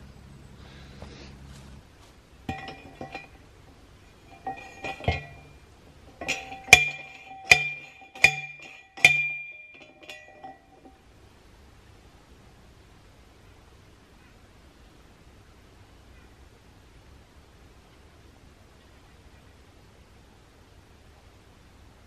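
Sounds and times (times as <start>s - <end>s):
post driver clanging on metal: 2.5s - 3.4s, 4.1s - 11.0s.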